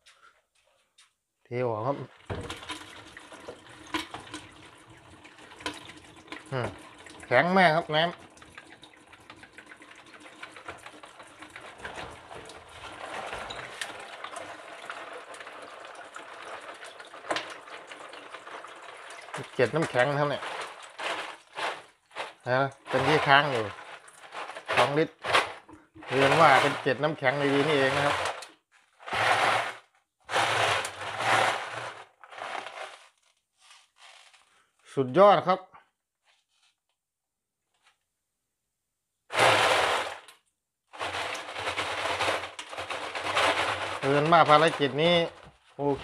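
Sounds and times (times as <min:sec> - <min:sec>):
water pouring into sink: 0:02.0 - 0:32.9, 0:41.0 - 0:46.0
ice rattling inside bottle: 0:02.0 - 0:34.3, 0:39.3 - 0:46.0
plastic bottle crackling: 0:10.8 - 0:34.6, 0:39.3 - 0:46.0.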